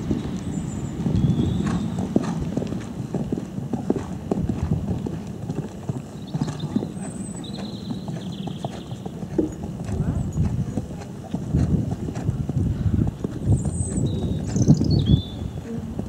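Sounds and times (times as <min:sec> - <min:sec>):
horse hoofbeats on sand: 0:00.0 - 0:16.0.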